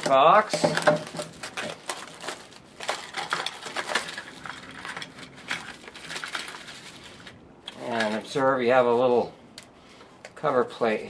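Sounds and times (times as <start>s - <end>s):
plastic and cardboard crinkling: 0.0s - 8.4s.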